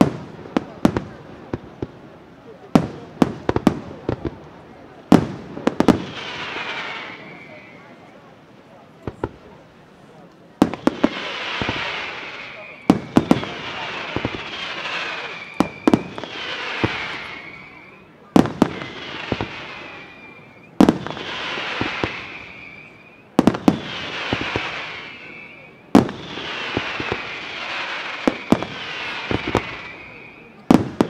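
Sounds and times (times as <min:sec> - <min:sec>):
falling whistling hiss: 0:05.8 - 0:08.2, 0:10.7 - 0:31.0.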